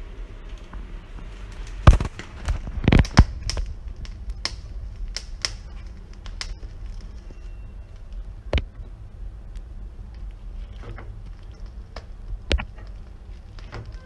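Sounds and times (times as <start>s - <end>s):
gas flame rushing: 0.0s - 14.0s
corn kernels popping: 1.5s - 8.7s.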